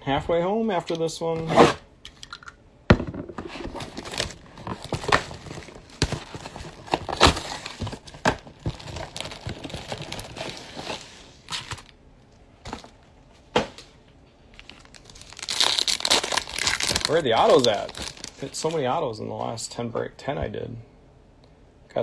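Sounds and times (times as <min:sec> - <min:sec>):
plastic wrap crinkling and tearing: 0:03.6 - 0:12.0, 0:14.5 - 0:18.8.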